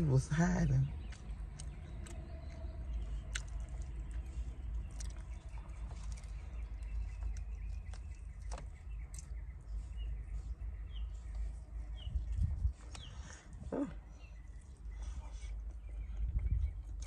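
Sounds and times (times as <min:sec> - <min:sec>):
chewing and crunching fried chicken: 0:00.0 - 0:17.0
wind rumble through car windows: 0:02.7 - 0:13.3, 0:15.2 - 0:17.0.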